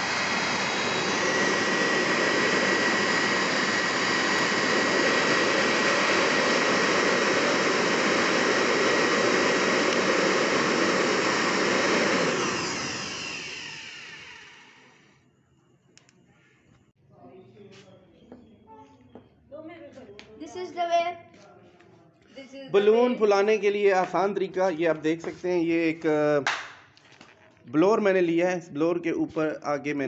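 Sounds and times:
electric air blower running: 0.0s - 15.2s.

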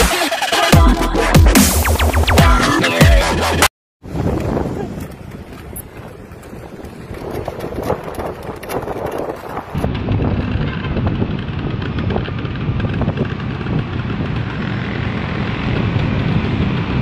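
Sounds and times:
wind buffeting microphone: 4.0s - 17.0s
vehicle rumble on road: 4.1s - 17.0s.

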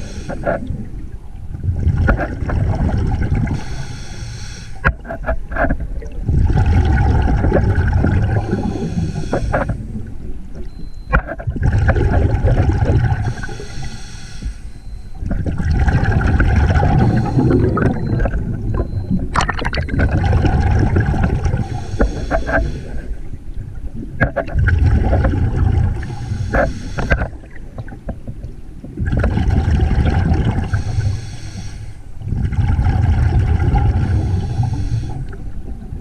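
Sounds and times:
scuba regulator hissing inhalation: 0.0s - 0.6s, 3.5s - 4.8s, 8.4s - 9.8s, 13.2s - 15.1s, 17.0s - 17.8s, 21.6s - 23.1s, 26.0s - 27.2s, 30.6s - 32.0s, 34.0s - 35.4s
bubbling exhalation underwater: 1.6s - 3.6s, 6.0s - 8.9s, 11.5s - 13.3s, 15.3s - 21.8s, 24.6s - 26.0s, 29.0s - 30.8s, 32.2s - 34.5s.

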